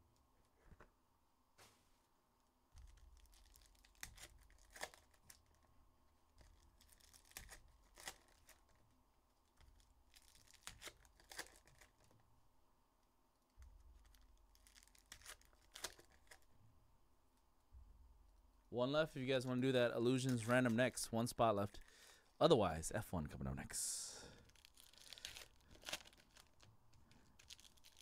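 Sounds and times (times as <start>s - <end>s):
foil wrappers tearing and crinkling: 2.8s - 5.7s, 6.3s - 8.8s, 9.6s - 12.1s, 14.0s - 16.5s, 24.4s - 28.0s.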